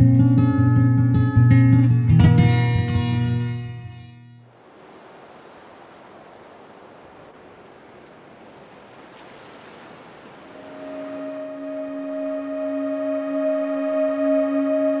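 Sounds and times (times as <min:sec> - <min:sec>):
hiss like ocean surf: 0:04.5 - 0:12.8
low synth drone: 0:10.8 - 0:15.0.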